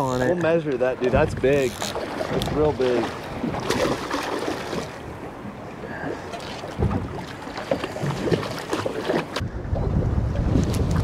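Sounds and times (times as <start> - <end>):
water washing: 0.0 - 9.4
wind: 0.0 - 11.0
fish thrashing and splashing: 1.6 - 5.0, 6.1 - 9.4.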